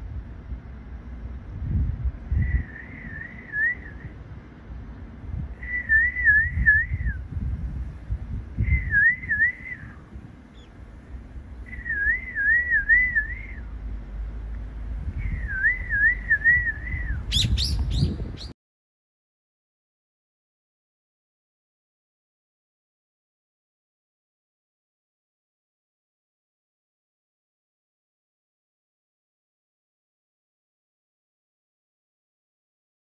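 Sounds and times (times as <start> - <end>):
low outdoor rumble: 0.0 - 18.6
bulbul whistled call: 2.3 - 4.2, 5.6 - 7.3, 8.6 - 10.7, 11.6 - 13.7, 15.2 - 18.6.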